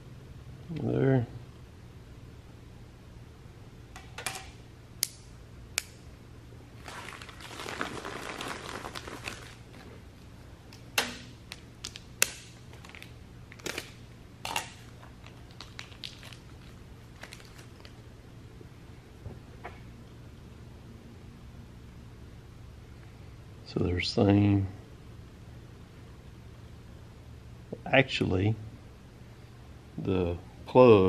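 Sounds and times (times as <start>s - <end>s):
plastic bag crinkling: 6.8s - 10.0s, 11.5s - 18.0s.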